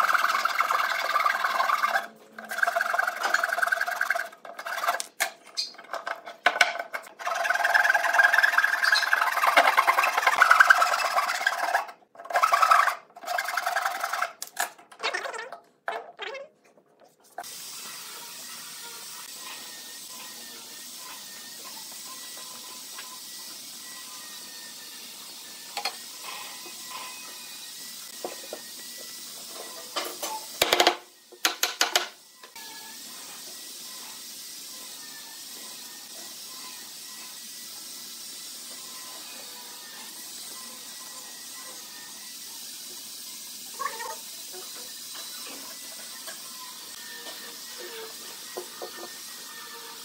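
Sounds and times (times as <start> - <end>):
steel blade scraping wood: 0.0 - 14.8.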